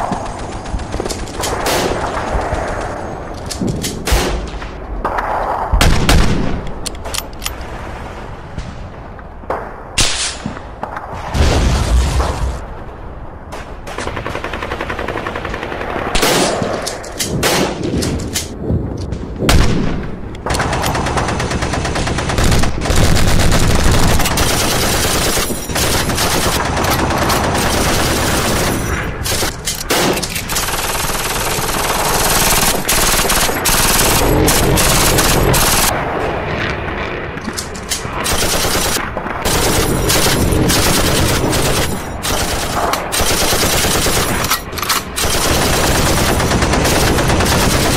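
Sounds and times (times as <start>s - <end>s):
machine-gun bursts: 20.6s - 35.9s, 38.2s - 47.9s.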